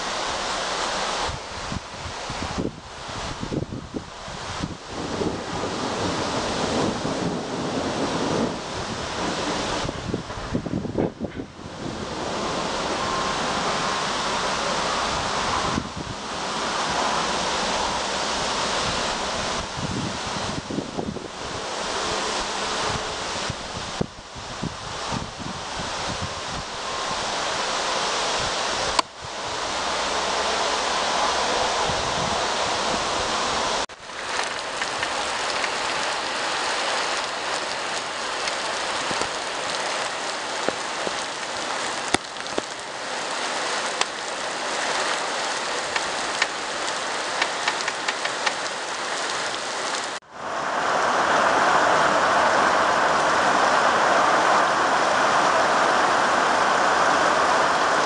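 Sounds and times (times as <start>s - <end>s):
heavy rain pouring: 0.0s - 58.0s
raindrops ticking: 33.9s - 50.2s.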